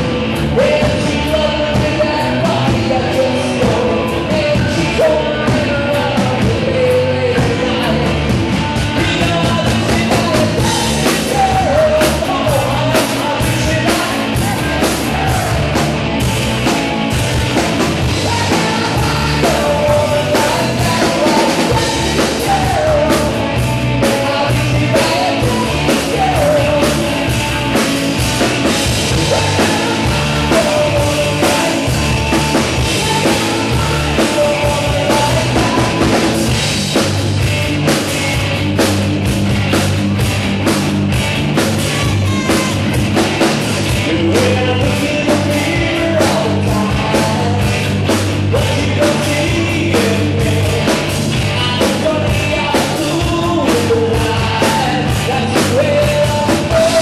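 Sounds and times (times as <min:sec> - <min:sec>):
man singing into microphone: 0:00.0 - 0:15.7, 0:18.0 - 0:28.0, 0:29.0 - 0:36.5, 0:44.0 - 0:57.0
drum kit beat: 0:00.0 - 0:57.0
live rock band playing: 0:00.0 - 0:57.0.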